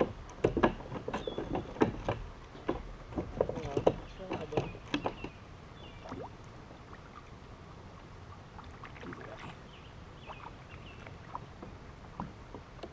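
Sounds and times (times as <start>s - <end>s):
knocks and rustles in kayak: 0.0s - 6.3s, 10.3s - 12.9s.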